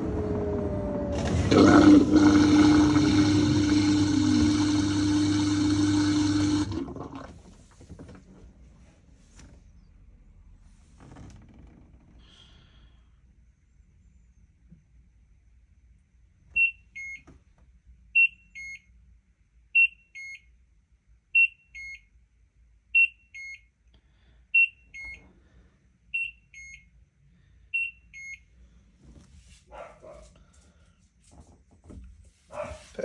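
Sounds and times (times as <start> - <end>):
washing machine beeps: 0.0 - 7.0, 16.6 - 17.3, 18.2 - 18.9, 19.8 - 20.5, 21.4 - 22.1, 23.0 - 23.7, 24.6 - 25.3, 26.1 - 26.9, 27.8 - 28.5.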